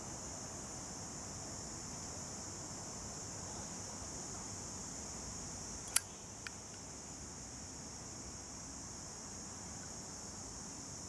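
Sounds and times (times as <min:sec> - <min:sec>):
steady high hiss: 0:00.0 - 0:11.0
lighter lid snapping shut: 0:05.9 - 0:06.1.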